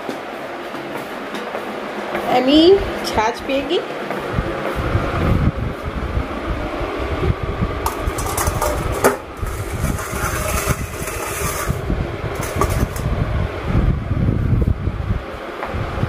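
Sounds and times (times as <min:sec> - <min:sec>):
low rumble: 0:04.3 - 0:16.0
metal bowl clacking on tile floor: 0:07.9 - 0:11.8, 0:12.4 - 0:13.0.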